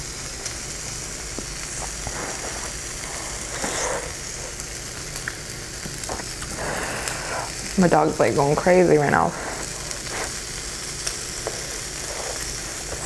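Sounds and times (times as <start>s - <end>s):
meat sizzling on a grill: 0.0s - 13.0s
soft chewing: 1.4s - 7.7s.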